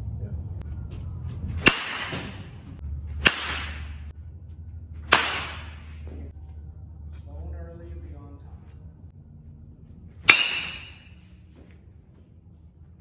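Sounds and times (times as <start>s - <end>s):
baseball bat hitting ball: 1.6s - 4.1s, 5.0s - 6.2s, 10.2s - 11.2s.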